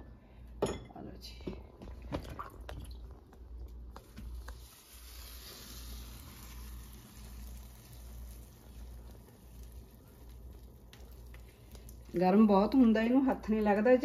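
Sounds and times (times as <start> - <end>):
faint low hum with hiss: 0.0 - 14.0.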